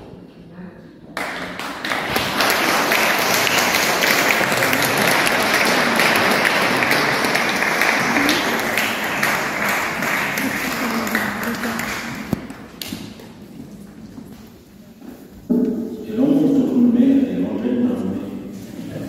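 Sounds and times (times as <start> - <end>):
crowd applauding: 1.2 - 12.9.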